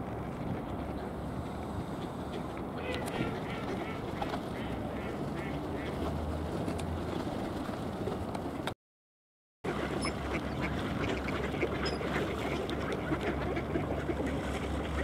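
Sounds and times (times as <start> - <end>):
ducks quacking: 2.3 - 6.1, 9.7 - 15.0.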